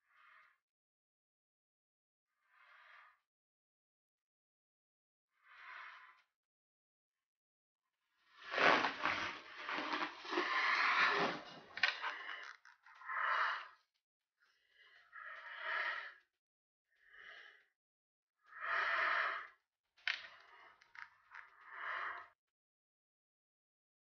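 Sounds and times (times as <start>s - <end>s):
person breathing in mask: 8.5s - 13.8s, 14.7s - 16.2s, 17.0s - 17.7s, 21.6s - 22.3s.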